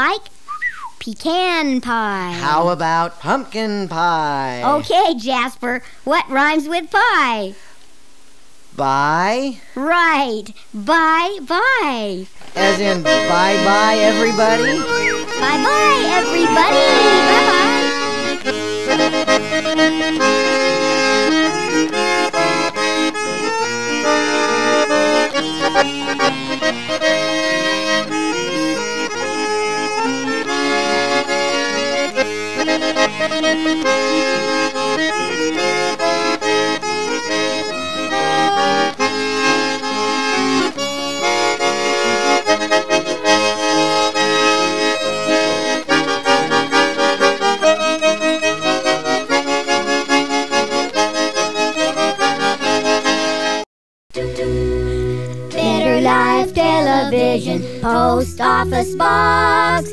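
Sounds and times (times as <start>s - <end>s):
instrumental theme music: 12.6s - 57.8s.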